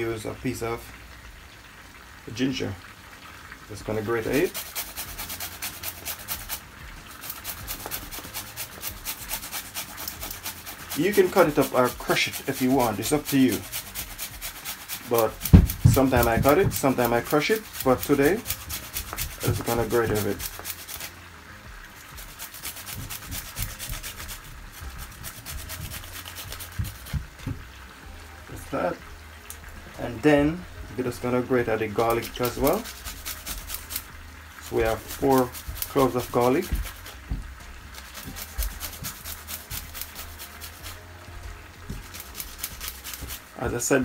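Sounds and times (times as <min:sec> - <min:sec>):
ginger grated on hand grater: 0:04.1 - 0:21.2, 0:22.0 - 0:27.4, 0:31.6 - 0:41.1, 0:41.8 - 0:43.8.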